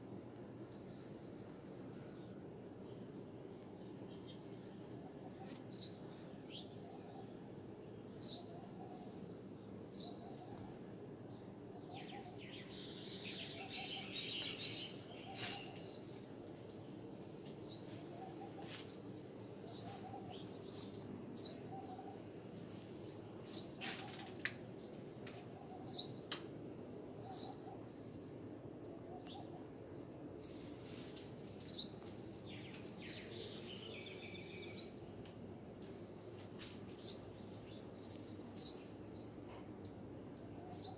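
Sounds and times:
small bird chirping: 11.8 - 16.2.

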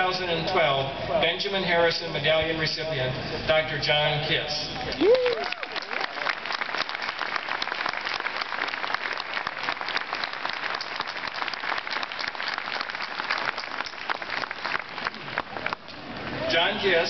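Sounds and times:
crowd applauding: 4.9 - 16.3.

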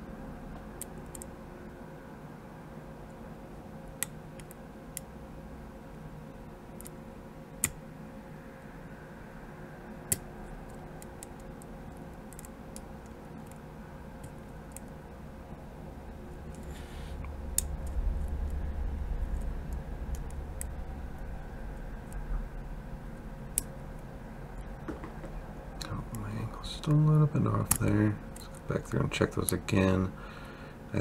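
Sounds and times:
low handling rumble: 15.9 - 28.2.

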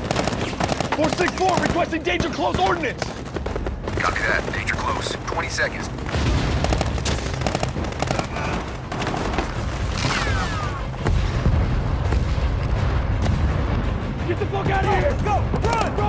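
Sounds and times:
rapid gunfire: 0.0 - 12.5
rumble of explosions: 0.0 - 16.0
loud bomb blasts: 6.0 - 14.1.

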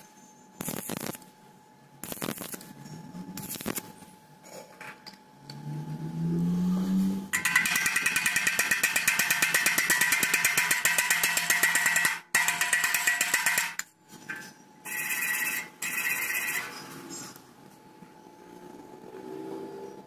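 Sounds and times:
wire brush scrubbing steel: 7.4 - 13.8, 14.9 - 16.8.

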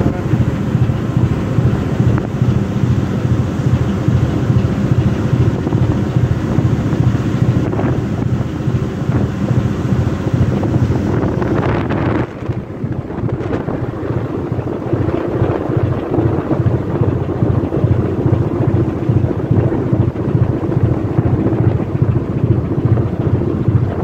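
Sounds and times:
boat engine low rumble: 0.0 - 24.0
wind buffeting microphone: 0.0 - 24.0.

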